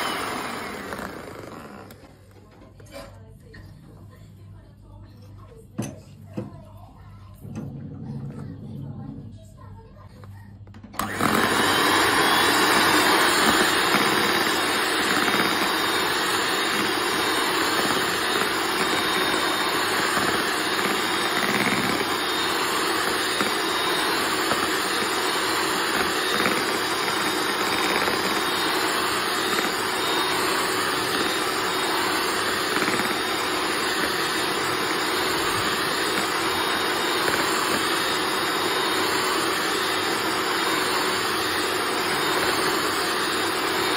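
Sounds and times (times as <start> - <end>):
electric hand mixer whining: 0.0 - 2.2, 11.0 - 43.9.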